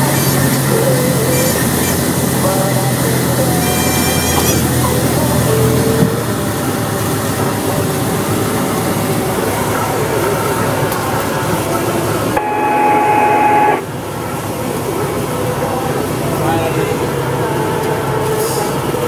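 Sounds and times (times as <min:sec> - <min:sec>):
wind: 0:00.0 - 0:19.0
steady mid-pitched tone: 0:11.5 - 0:17.0.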